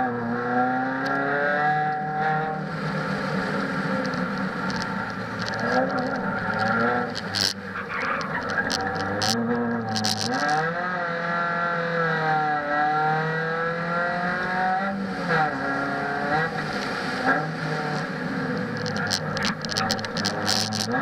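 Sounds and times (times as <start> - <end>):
car engine accelerating: 0.0 - 21.0.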